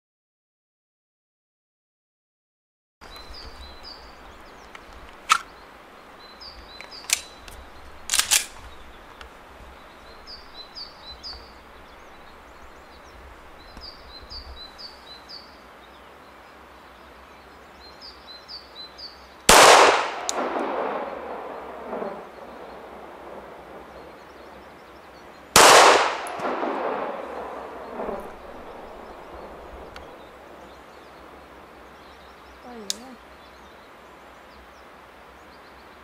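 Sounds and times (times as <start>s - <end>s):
pistol shots: 19.5s - 22.2s, 25.6s - 29.3s.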